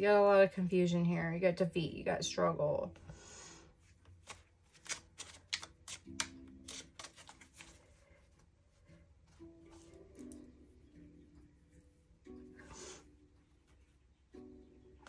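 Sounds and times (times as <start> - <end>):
cards being shuffled: 3.8 - 8.4.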